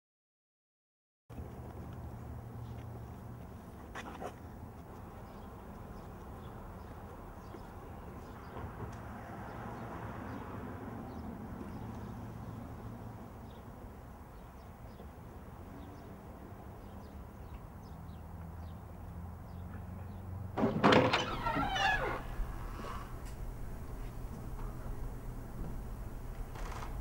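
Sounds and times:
door unlatched and pushed open: 0:20.6 - 0:22.7
steady low hum: 0:21.4 - 0:27.0.

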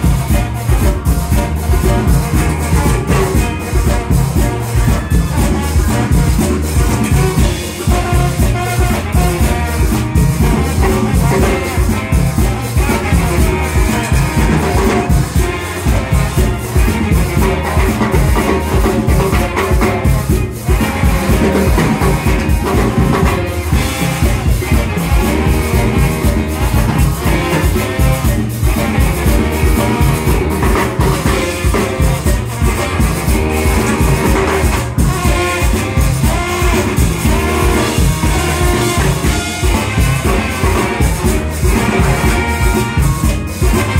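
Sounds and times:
drum kit: 0:00.0 - 0:43.9
saxophones: 0:00.0 - 0:43.9
trombone: 0:00.0 - 0:43.9.

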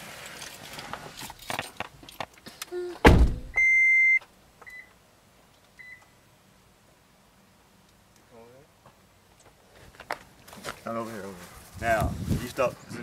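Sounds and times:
car door thunk: 0:03.0 - 0:03.6
car warning beeps: 0:03.5 - 0:05.0, 0:05.8 - 0:06.2
handling and rustling: 0:09.6 - 0:12.8.

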